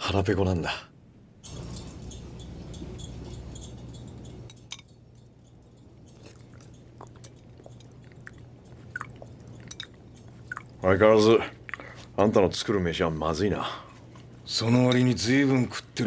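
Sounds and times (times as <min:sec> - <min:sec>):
dishes and utensils clinking: 0:01.4 - 0:10.8
chewing: 0:05.2 - 0:12.2.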